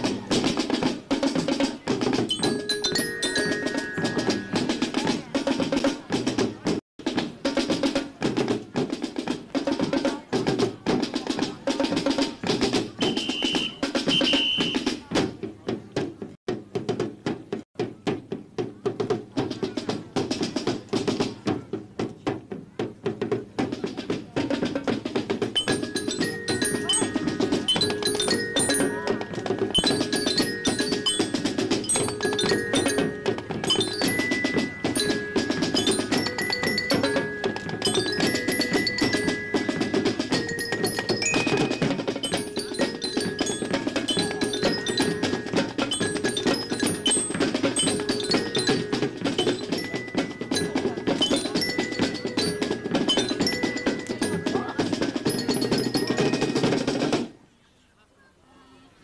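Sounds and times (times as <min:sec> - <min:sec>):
drum strokes: 0:00.0 - 0:57.4
marching band playing: 0:00.0 - 0:57.4
glockenspiel melody: 0:02.1 - 0:05.4, 0:25.5 - 0:57.2.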